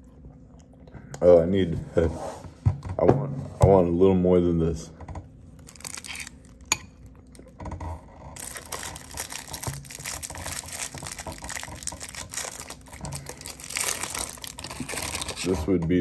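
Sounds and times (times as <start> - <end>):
packaging clicks and crinkling: 5.6 - 6.7, 8.4 - 15.6.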